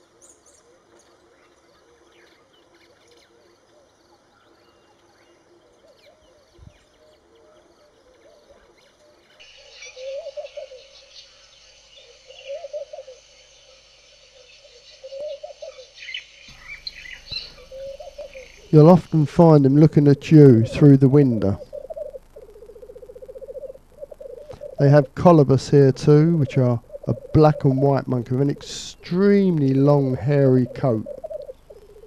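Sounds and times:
bird wavering call: 7.9s - 32.0s
high bird chirps: 9.4s - 19.3s.

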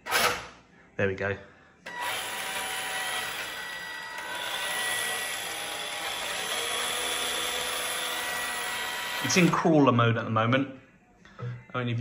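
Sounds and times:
electric motor and gears whining: 1.9s - 9.6s.

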